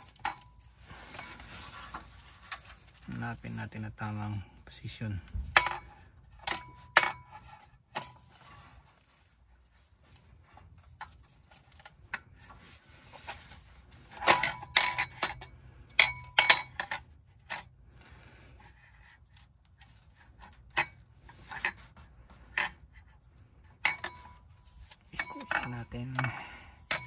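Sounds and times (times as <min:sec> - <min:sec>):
metal plate clinking and scraping: 0:00.0 - 0:03.0, 0:05.5 - 0:09.1, 0:12.4 - 0:17.7, 0:18.6 - 0:27.0
metal clanks: 0:05.4 - 0:08.6, 0:14.0 - 0:17.7, 0:23.6 - 0:27.0.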